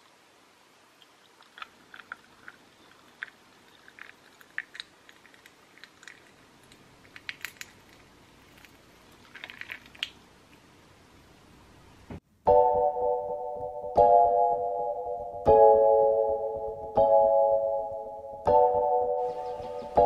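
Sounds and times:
ice cubes crackling and popping: 1.1 - 10.6.

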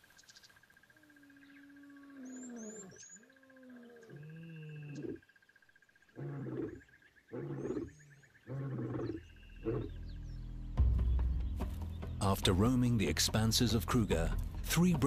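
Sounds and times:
lion grunting: 6.1 - 10.0
lion roaring: 6.1 - 10.0.

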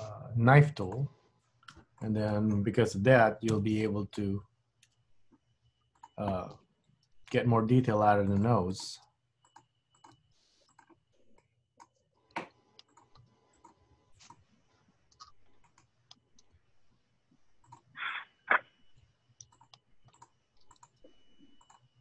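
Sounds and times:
computer mouse clicks: 9.4 - 14.5, 15.1 - 16.6, 17.6 - 17.9, 19.3 - 21.9.

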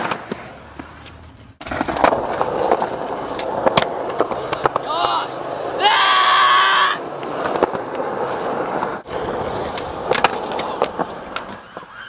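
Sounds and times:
skateboard clacking: 0.0 - 5.9, 7.0 - 12.0
skateboard wheels rolling on concrete: 0.0 - 12.0
skateboard clattering away: 9.0 - 11.9.

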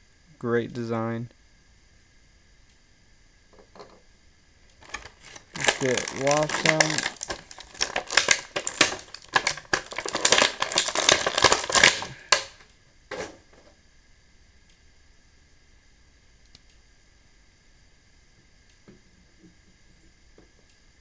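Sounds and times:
plastic packaging crackling: 4.8 - 13.4.

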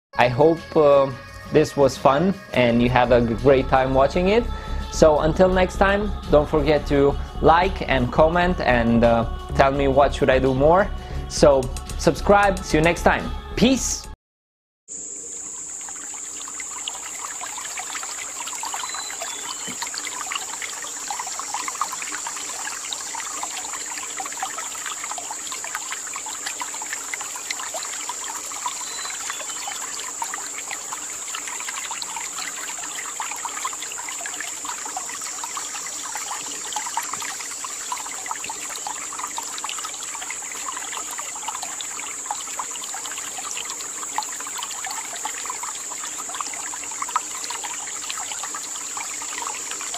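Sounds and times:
stream babbling over rocks: 15.5 - 49.9.

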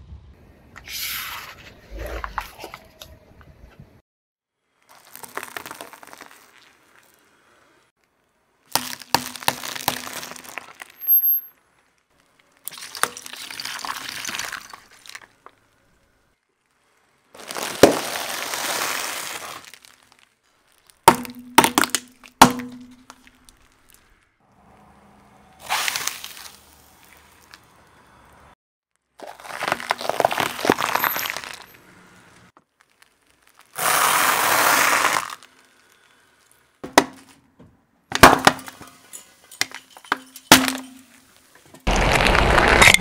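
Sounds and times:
tyre crushing objects with crackling: 4.9 - 7.2, 8.7 - 11.1, 16.6 - 24.0, 25.6 - 27.6, 29.2 - 31.8, 32.5 - 37.4, 40.5 - 43.0.

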